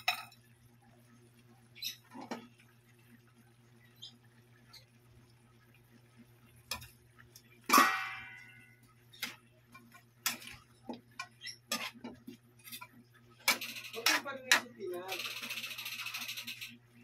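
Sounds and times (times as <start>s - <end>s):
ringing metal clang: 7.7s - 8.6s
metal ladle scraping a wok: 11.4s - 12.1s.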